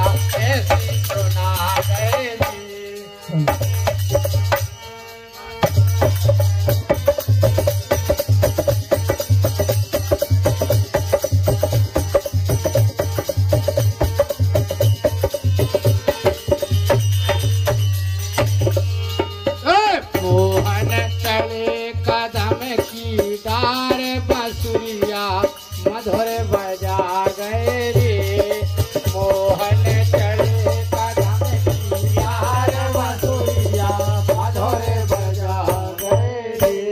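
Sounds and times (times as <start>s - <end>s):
man singing: 0.0s - 4.4s, 18.6s - 36.9s
harmonium: 0.0s - 36.9s.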